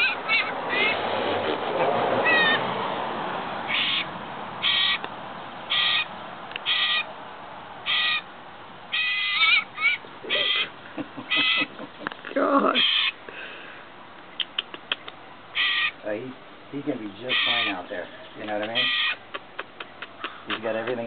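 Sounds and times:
young raptor calling: 0.0 - 2.7, 3.7 - 5.1, 5.7 - 7.1, 7.8 - 8.3, 8.9 - 11.8, 12.4 - 13.2, 14.3 - 16.0, 17.3 - 21.0.

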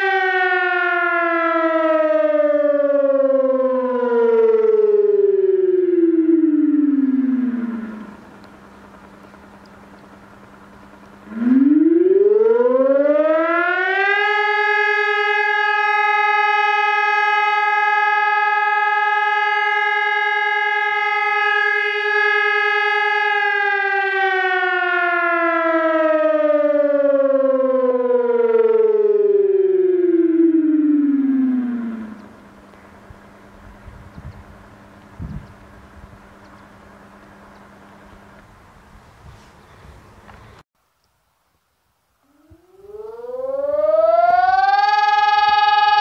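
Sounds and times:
electronic siren rising and falling: 0.0 - 8.5, 11.2 - 32.8, 42.2 - 46.0.

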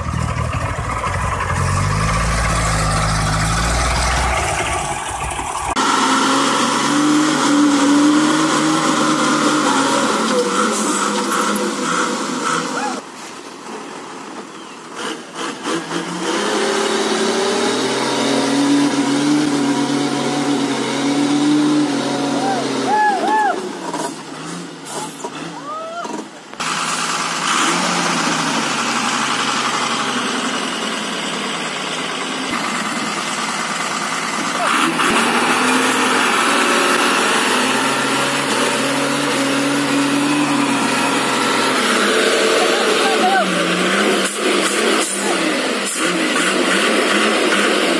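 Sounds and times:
truck engine revving hard: 0.0 - 13.1, 14.8 - 47.9.

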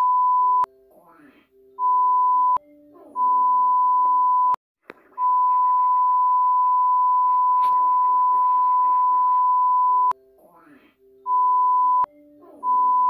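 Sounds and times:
censor bleep tone: 0.0 - 0.7, 1.8 - 2.6, 3.2 - 4.6, 5.2 - 10.1, 11.3 - 12.1, 12.7 - 13.0
muffled cartoon voices: 0.9 - 1.5, 10.4 - 11.0.

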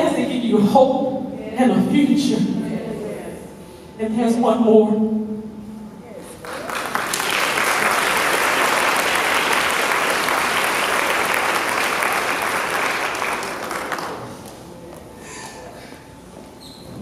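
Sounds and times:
audience applauding: 6.4 - 14.4.

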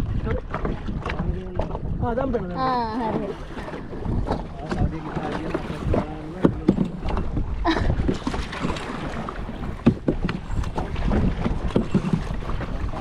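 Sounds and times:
paddle splashes and knocks: 0.0 - 13.0
wind rumble on microphone: 0.0 - 13.0.

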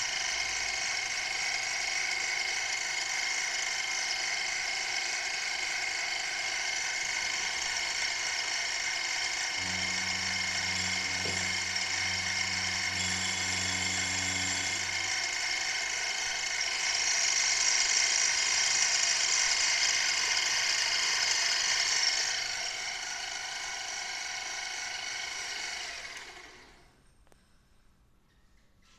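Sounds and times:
milling machine spindle whining: 0.0 - 26.8
low hum: 9.5 - 16.4.

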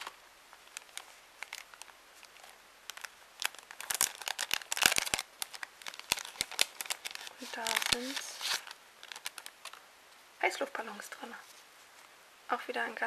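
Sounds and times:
paper bag crinkling: 0.0 - 9.8.

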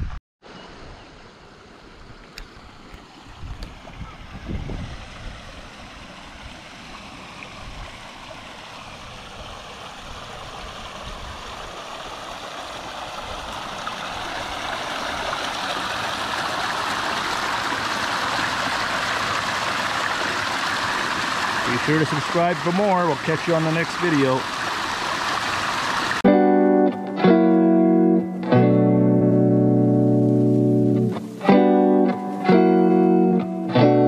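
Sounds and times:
creek trickling over rocks: 1.3 - 26.2.

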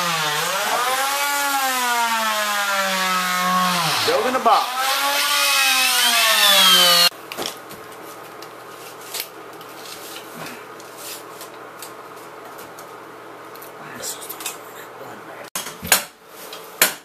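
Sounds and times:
electric drill drilling into wood: 4.7 - 7.1.

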